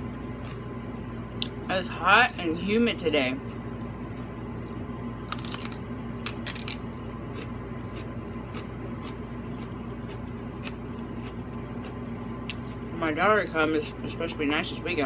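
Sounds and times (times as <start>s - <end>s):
steady low hum: 0.0s - 15.0s
crisp crackles of eating chicken: 3.4s - 12.9s.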